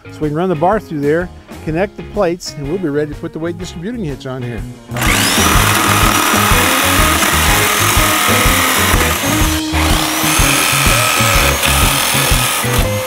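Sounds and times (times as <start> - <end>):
background music with steady beat: 0.0 - 13.0
jigsaw cutting metal: 5.0 - 13.0.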